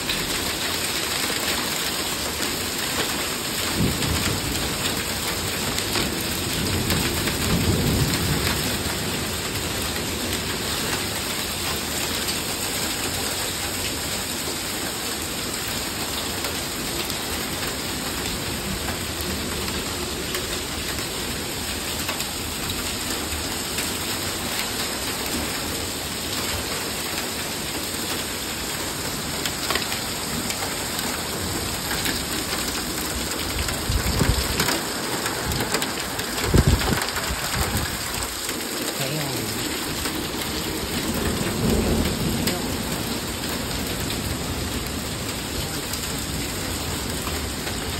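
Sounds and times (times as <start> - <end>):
heavy rain pouring: 0.0 - 47.9
thunder rumble: 32.0 - 38.5.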